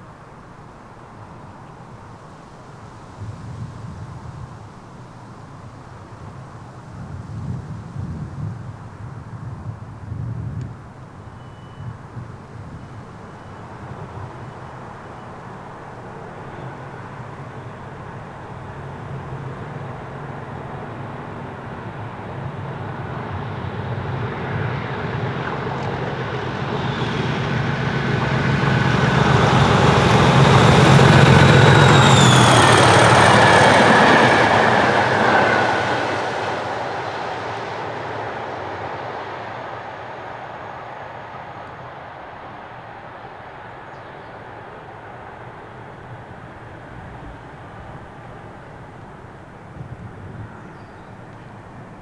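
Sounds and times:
diesel locomotive engine: 0.0 - 52.0
wheels rumbling on rails: 0.0 - 52.0
turbocharger whistle: 29.4 - 34.0.

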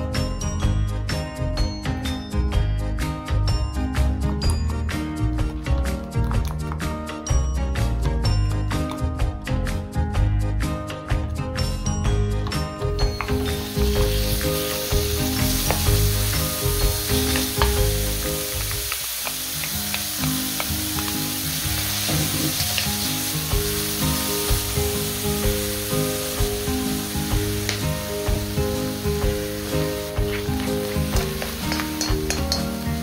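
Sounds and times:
background music: 0.0 - 33.0
meat sizzling in a wok: 12.9 - 33.0
wooden spatula scraping: 29.3 - 32.0.

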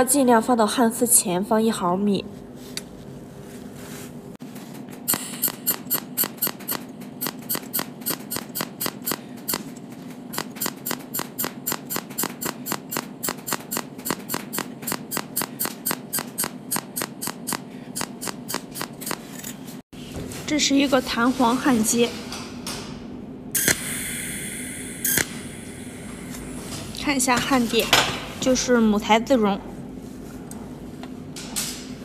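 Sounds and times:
steady low hum: 0.0 - 32.0
welding arc snapping clicks: 25.1 - 25.4.

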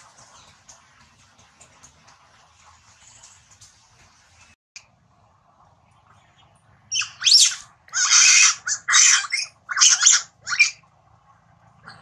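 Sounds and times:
monkey screeching: 6.9 - 10.8.

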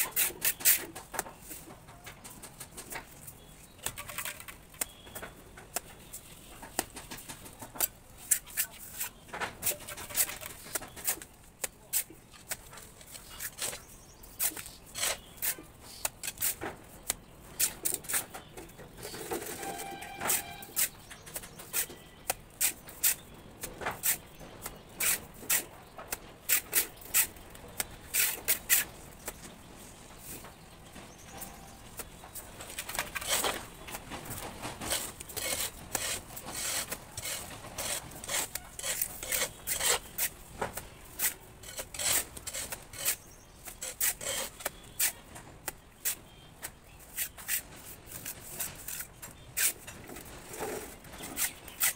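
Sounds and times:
brief pitched call: 19.5 - 20.8
trowel scraping and slapping plaster: 26.5 - 28.9, 32.7 - 45.2, 46.0 - 51.9.

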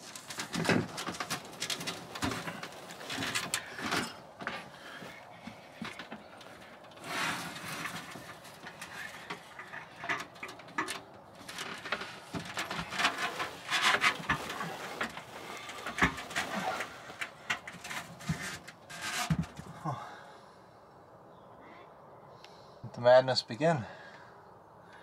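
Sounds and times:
rummaging rustles and scrapes: 0.0 - 19.7.

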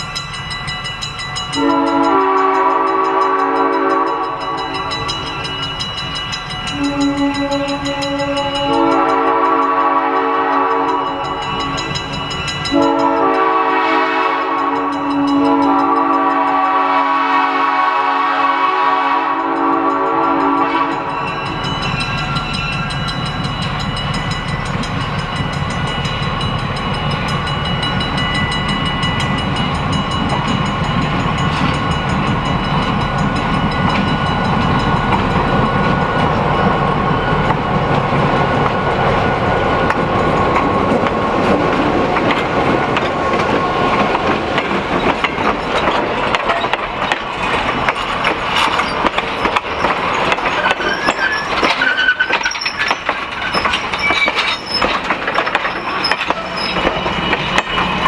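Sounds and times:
diesel locomotive engine: 0.0 - 58.0
train air horn: 1.6 - 4.8, 6.7 - 11.2, 12.7 - 21.2
train wheels clacking on rail joints: 19.3 - 58.0.

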